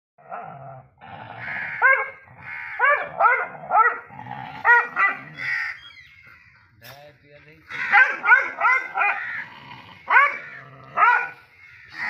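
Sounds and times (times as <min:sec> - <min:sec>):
dog growling: 0:00.3 - 0:05.5, 0:07.8 - 0:12.0
dog barking: 0:01.7 - 0:05.4, 0:07.8 - 0:09.3, 0:10.1 - 0:11.4.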